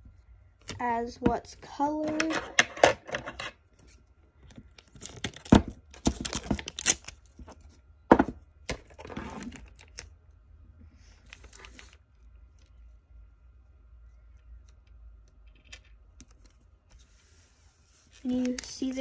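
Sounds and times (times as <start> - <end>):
tape rustling on paper: 11.2 - 12.7, 16.2 - 19.0.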